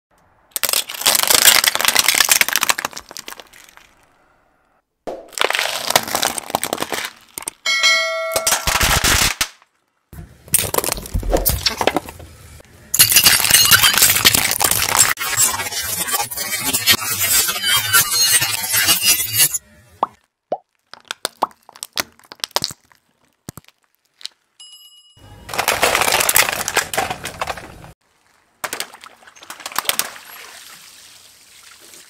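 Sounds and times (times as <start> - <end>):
plastic cups crushed by tyre: 0.5 - 4.1, 5.1 - 7.7, 10.5 - 12.2, 25.5 - 28.0, 28.6 - 30.4
bell-like chime: 7.7 - 8.5, 24.6 - 25.4.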